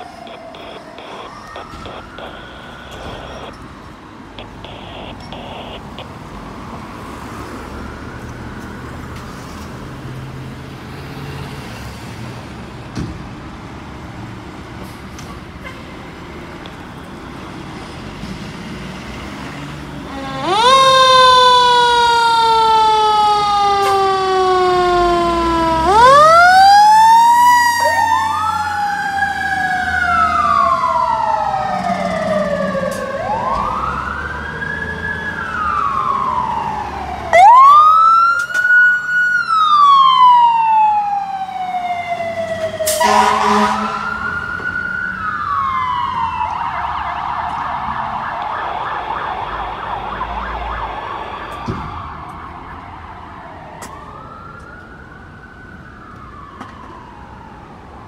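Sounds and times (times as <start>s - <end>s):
fire truck engine running: 0.0s - 6.5s
fire truck siren wailing: 0.0s - 9.0s, 19.7s - 58.0s
street traffic: 0.0s - 58.0s.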